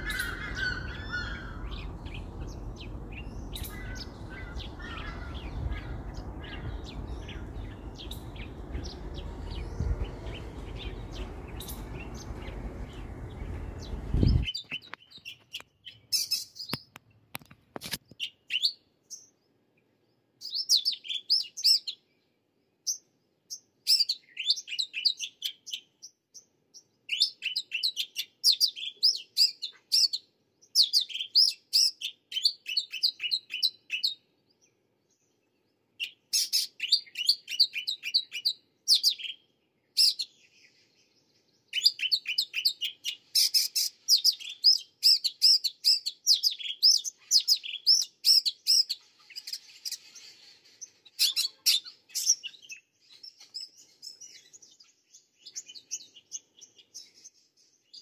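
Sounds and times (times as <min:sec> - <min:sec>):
birds chattering: 0:00.0 - 0:16.9.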